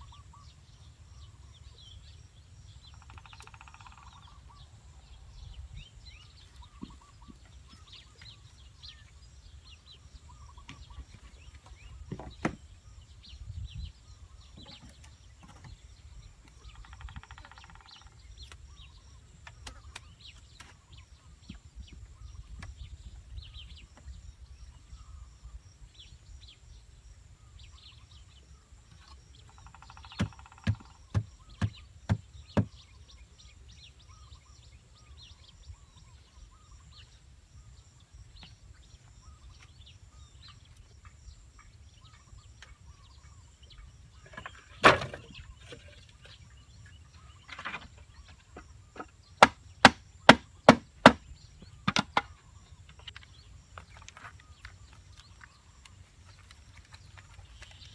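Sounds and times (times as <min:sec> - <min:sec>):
small birds chirping: 0:00.0 - 0:57.9
hand-tool knocks on wood: 0:30.1 - 0:32.8.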